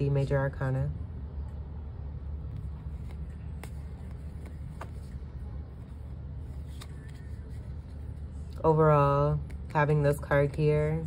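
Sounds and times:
low background rumble: 0:00.0 - 0:11.0
cards clicking being shuffled: 0:02.5 - 0:05.3, 0:06.4 - 0:08.6.

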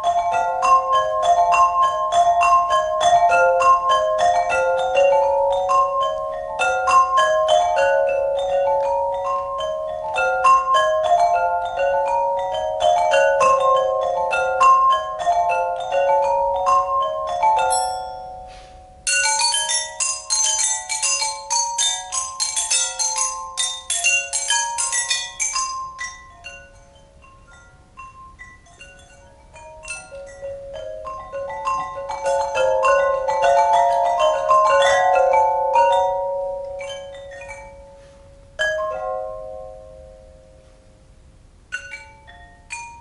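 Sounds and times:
tuned pipes struck with mallets: 0:00.0 - 0:41.0.

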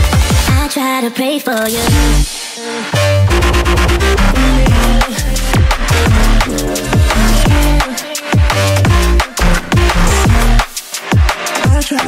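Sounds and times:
electronic music with fast drums: 0:00.0 - 0:00.8, 0:01.5 - 0:12.0
deep sliding bass notes: 0:01.8 - 0:02.3, 0:03.0 - 0:08.0, 0:08.8 - 0:10.7.

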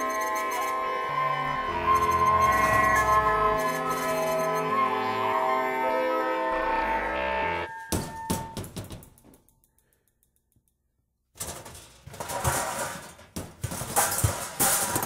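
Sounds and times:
rattling clattering texture: 0:11.3 - 0:15.0.

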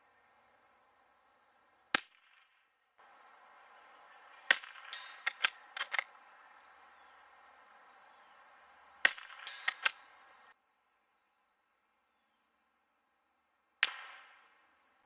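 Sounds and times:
rifle shots: 0:09.0 - 0:10.1, 0:13.8 - 0:14.3
quick small clicks and knocks: 0:09.1 - 0:10.0.

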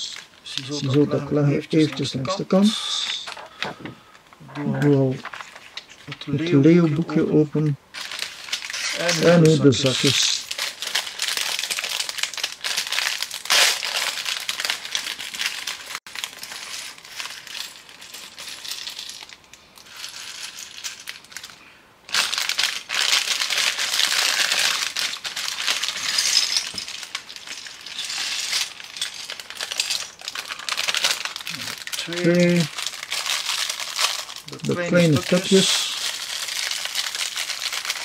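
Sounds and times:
plastic bags crinkling: 0:00.0 - 0:06.9, 0:07.9 - 0:38.0
small plastic pieces clattering: 0:08.0 - 0:38.0.

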